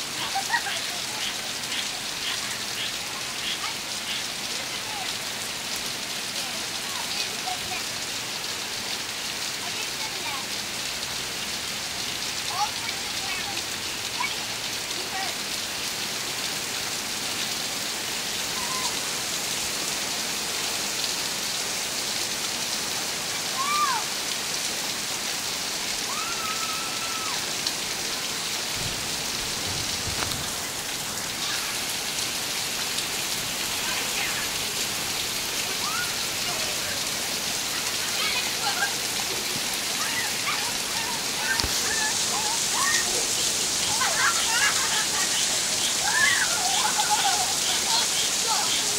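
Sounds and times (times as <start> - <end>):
heavy rain on lawn and pavement: 0.0 - 48.9
children calling out: 0.1 - 5.3, 18.4 - 19.2, 23.4 - 24.2, 26.0 - 27.6, 30.5 - 32.2, 33.7 - 48.9.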